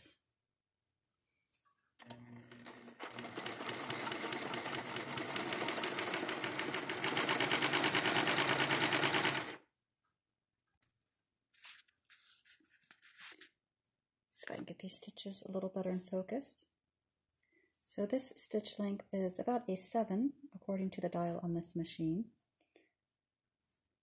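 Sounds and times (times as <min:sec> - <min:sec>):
sewing machine stitching: 0:02.0 - 0:09.6.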